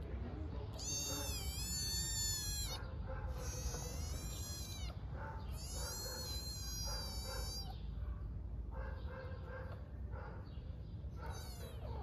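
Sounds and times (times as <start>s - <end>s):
kitten meowing loudly: 0.7s - 7.8s, 11.2s - 12.0s.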